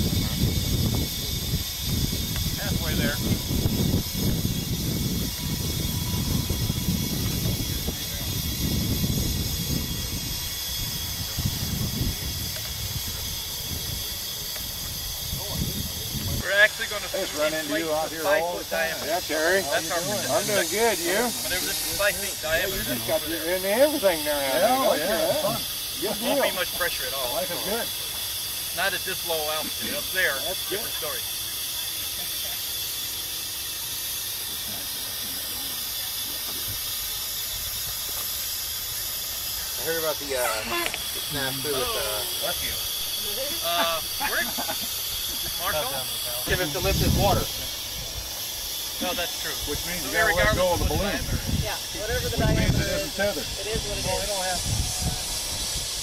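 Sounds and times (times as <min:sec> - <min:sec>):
wind rumbling on microphone: 0:00.0 - 0:16.5, 0:46.5 - 0:48.3, 0:49.6 - 0:56.0
gas hissing into balloon: 0:00.0 - 0:56.0.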